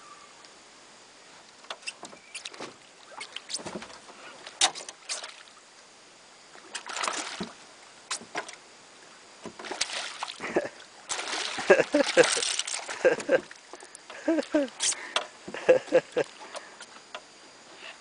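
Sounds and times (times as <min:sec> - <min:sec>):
fish splashing at the surface: 0:06.8 - 0:08.3, 0:09.6 - 0:10.5, 0:11.1 - 0:13.6.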